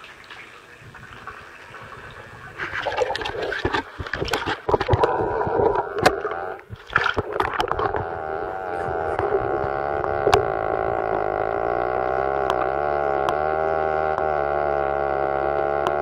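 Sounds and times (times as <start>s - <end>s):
water splashing in bathtub: 0.0s - 8.1s
underwater muffled sloshing: 0.0s - 11.8s.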